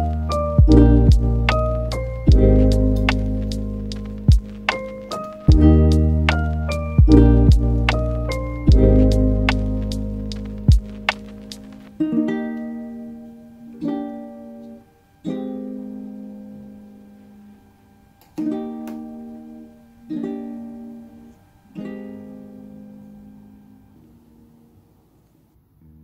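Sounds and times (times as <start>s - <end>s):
plucked string chords: 0.0s - 24.6s.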